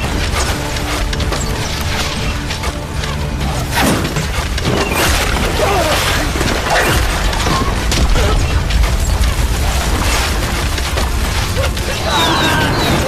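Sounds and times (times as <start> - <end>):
fire crackling: 0.0 - 13.0
fire rumbling: 4.0 - 13.0.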